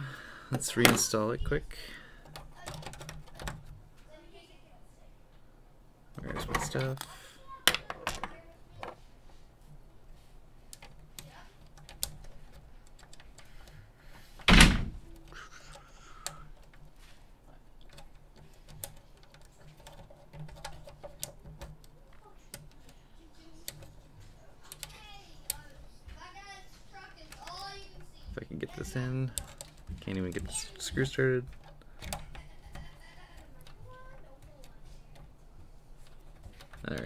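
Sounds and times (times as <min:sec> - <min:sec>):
hands clicking and tapping parts: 0:00.0 - 0:01.3, 0:02.2 - 0:03.8, 0:06.1 - 0:09.0, 0:10.6 - 0:37.0
loud thump: 0:14.5 - 0:15.0.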